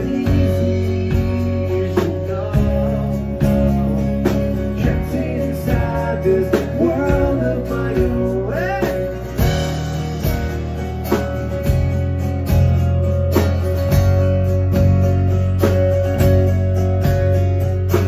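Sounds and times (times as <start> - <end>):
person singing: 0.0 - 9.4
bass guitar: 0.0 - 18.0
drum kit: 0.0 - 18.0
strummed acoustic guitar: 0.0 - 18.0.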